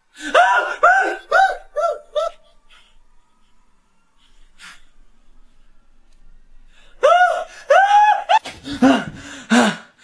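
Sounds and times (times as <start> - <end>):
man screaming: 0.2 - 2.3, 7.0 - 9.1
man gasping breaths: 8.7 - 10.0.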